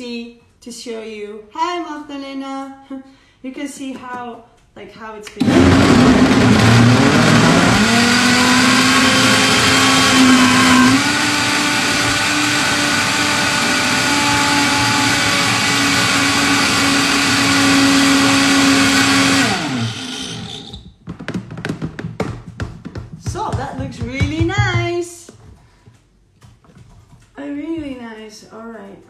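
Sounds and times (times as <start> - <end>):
blender motor churning: 5.4 - 20.8.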